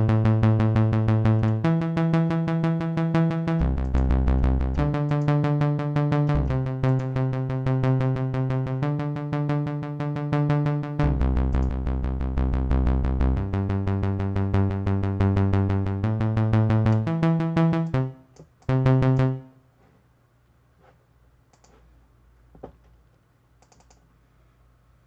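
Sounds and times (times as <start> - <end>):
synthesizer pulsing bass and chords: 0.0 - 19.6.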